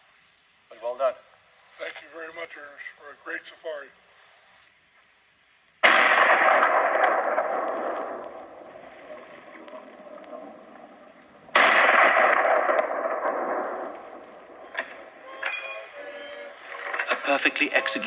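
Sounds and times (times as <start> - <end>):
rifle shots with rolling echo: 5.8 - 10.6, 11.5 - 15.2.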